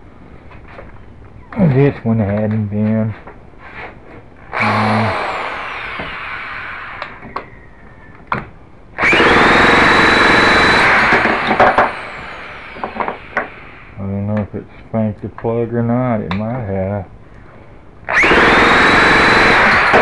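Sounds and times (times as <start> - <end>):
electric starter spinning engine: 4.4 - 7.2, 9.0 - 14.0, 18.1 - 20.0.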